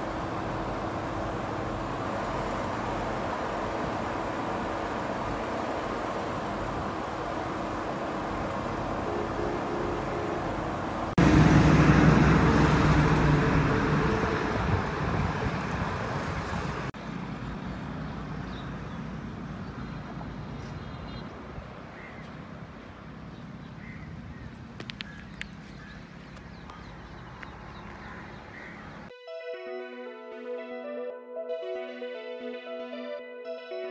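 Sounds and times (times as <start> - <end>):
road traffic: 0.0 - 29.2
wind noise on microphone: 11.5 - 16.9
bird calls: 18.4 - 22.4, 23.3 - 29.1
electronic music: 29.1 - 33.9.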